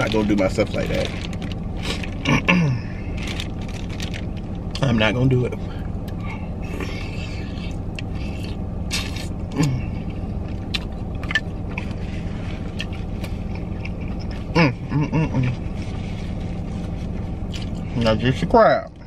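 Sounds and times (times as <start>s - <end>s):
plastic bag crinkling: 0.0s - 2.3s, 3.1s - 4.7s
low hum inside car: 0.0s - 19.0s
chewing with wet mouth smacks: 10.3s - 14.6s, 17.4s - 17.8s.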